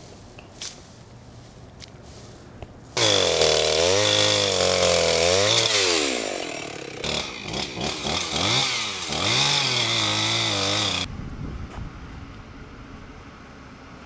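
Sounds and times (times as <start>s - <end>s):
chainsaw cutting wood: 3.0s - 11.1s.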